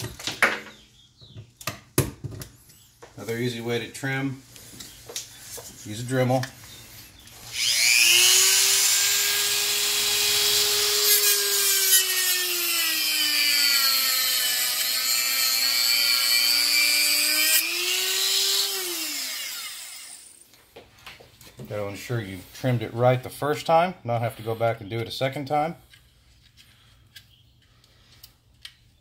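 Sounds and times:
rotary tool high whine: 0:07.3 - 0:20.4.

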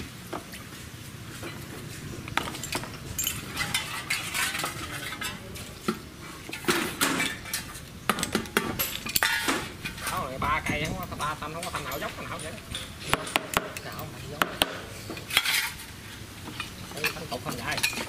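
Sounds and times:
gear puller clanking on metal: 0:01.4 - 0:14.4.

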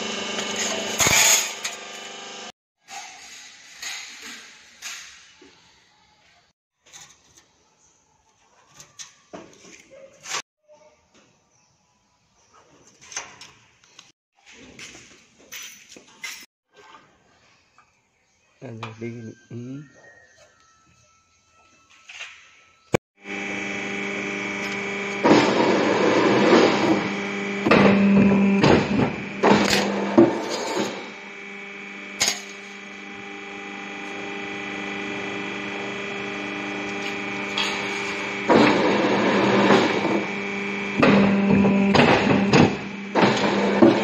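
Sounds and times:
press brake motor humming: 0:23.3 - 0:44.0
machine bending steel sheet: 0:25.2 - 0:31.1, 0:36.2 - 0:40.3, 0:41.0 - 0:44.0.

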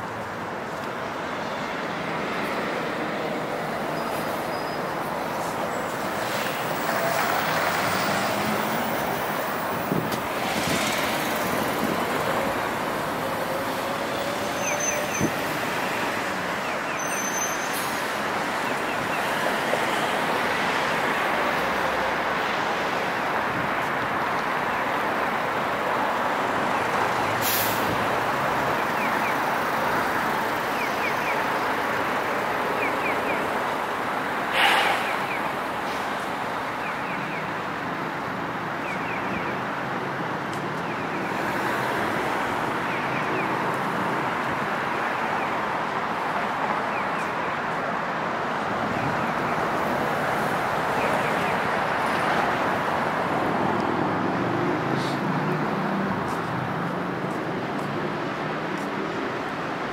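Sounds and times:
street traffic: 0:00.0 - 0:59.9
brief hiss: 0:34.5 - 0:35.3.

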